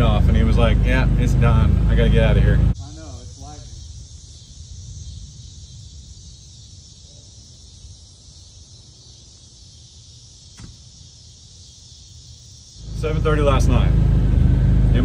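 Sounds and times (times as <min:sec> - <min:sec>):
steady high hiss: 0:02.7 - 0:13.8.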